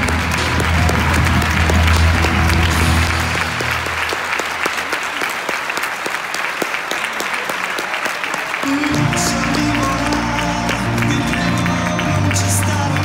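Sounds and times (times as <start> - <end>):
background music: 0.0 - 4.7, 8.6 - 13.0
audience applauding: 0.0 - 13.0.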